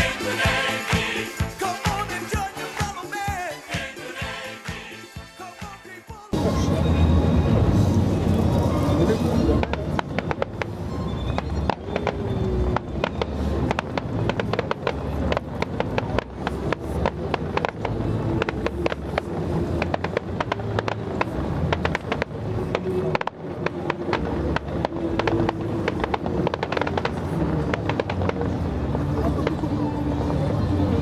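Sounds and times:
fireworks bangs and crackles: 0:09.4 - 0:30.4.

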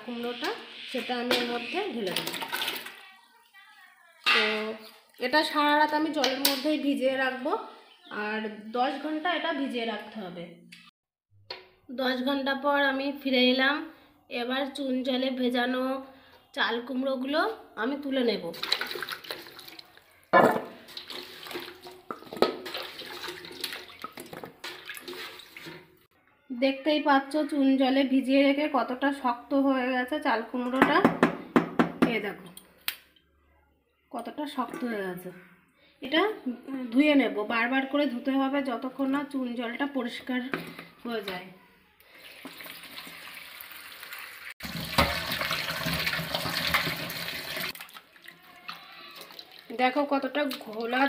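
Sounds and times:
water sloshing and splashing: 0:02.0 - 0:03.0, 0:18.5 - 0:20.0, 0:20.8 - 0:26.1, 0:42.2 - 0:49.8.

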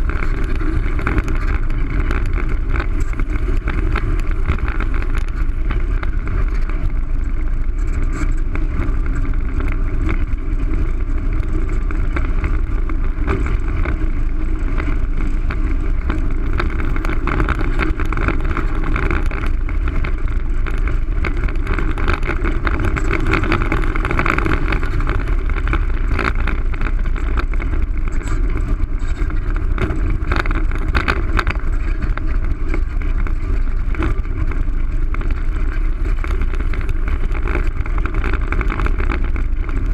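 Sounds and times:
skateboard wheels rolling on asphalt: 0:00.0 - 0:39.9
wind buffeting microphone: 0:00.0 - 0:39.9.

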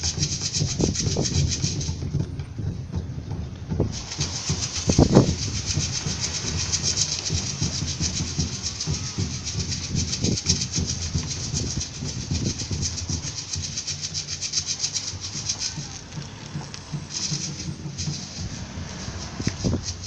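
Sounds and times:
fast shaker rhythm: 0:00.0 - 0:20.0
low drum beats: 0:00.0 - 0:20.0.

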